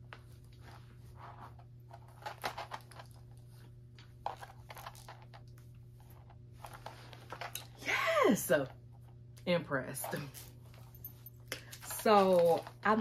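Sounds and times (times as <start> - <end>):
low steady hum: 0.0 - 13.0
chain strap rustling and handling: 0.6 - 5.4, 10.0 - 13.0.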